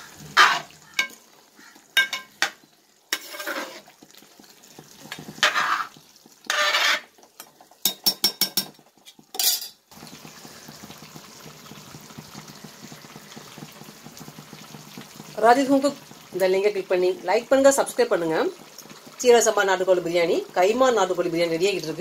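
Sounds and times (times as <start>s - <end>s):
pot bubbling hiss: 0.0s - 22.0s
metal ladle scraping in pot: 0.1s - 1.2s, 3.1s - 4.0s, 5.1s - 7.2s
clinks of ladle: 2.0s - 2.6s, 7.8s - 9.8s.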